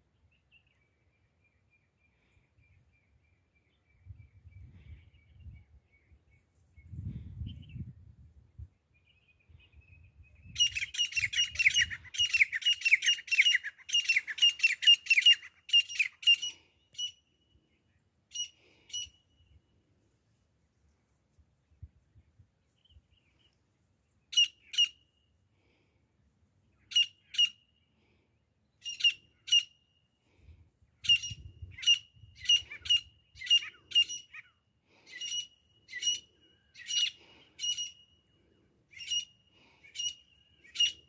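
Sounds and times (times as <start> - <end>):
francolin calling: 10.5 - 17.3, 31.0 - 41.0.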